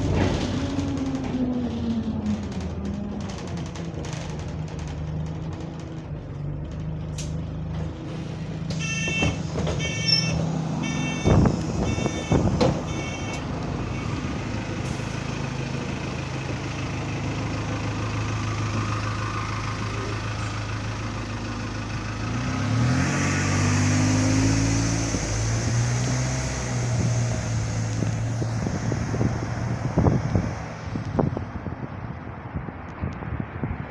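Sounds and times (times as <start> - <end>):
bus engine idling and revving: 0.0 - 33.9
bus doors knocking shut: 8.6 - 13.5
bus door-warning beeps: 8.7 - 14.3.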